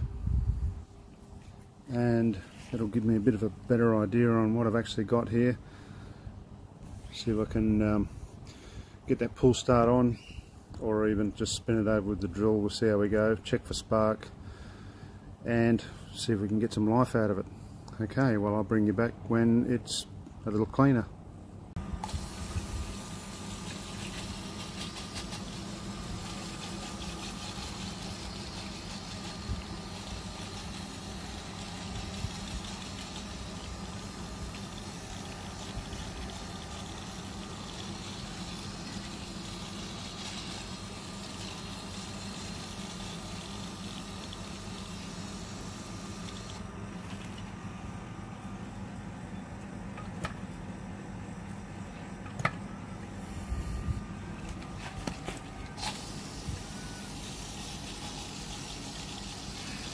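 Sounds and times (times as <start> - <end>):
pressure washer motor humming: 21.8 - 48.6, 54.4 - 59.9
water spray hissing: 22.0 - 46.6, 55.8 - 59.9.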